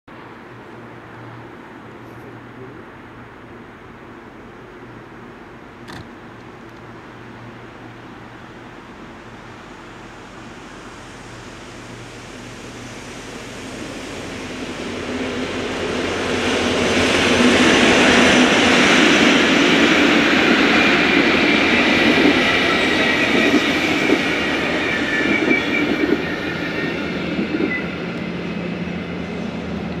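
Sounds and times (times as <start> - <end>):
train wheels rumbling on rails: 8.9 - 30.0.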